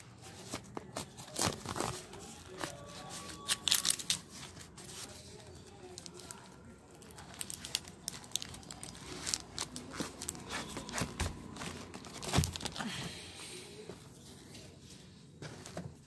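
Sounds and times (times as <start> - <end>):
plastic wrapping crinkling: 0.3 - 12.9
cardboard rustling and scraping: 8.3 - 12.8.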